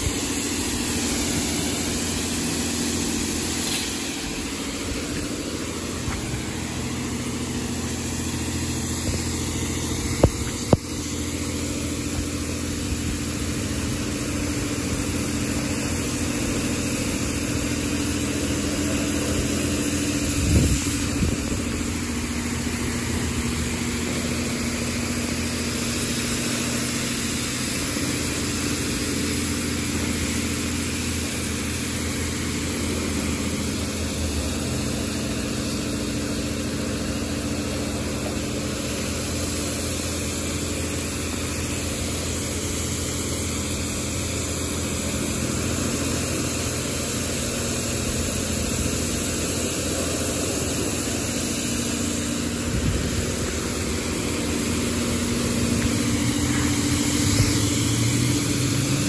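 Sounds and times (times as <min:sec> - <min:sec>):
hiss of water spray: 0:00.0 - 0:59.0.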